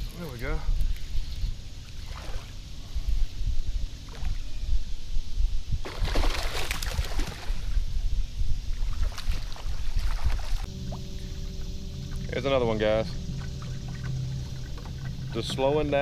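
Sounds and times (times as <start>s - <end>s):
low rumble on microphone: 6.9s - 16.0s.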